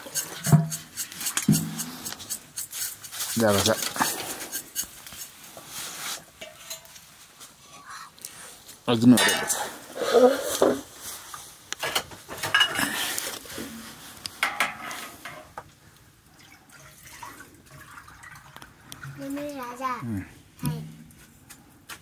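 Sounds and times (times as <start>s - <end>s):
pots and dishes clinking: 0.0s - 2.2s, 6.4s - 7.1s, 9.0s - 9.9s, 11.8s - 13.0s, 14.4s - 15.6s.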